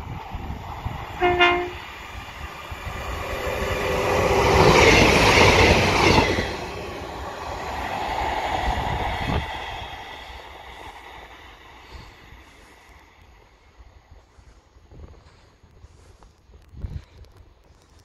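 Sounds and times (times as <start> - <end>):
diesel train passing: 0.0 - 14.6
short train horn note: 1.2 - 1.8.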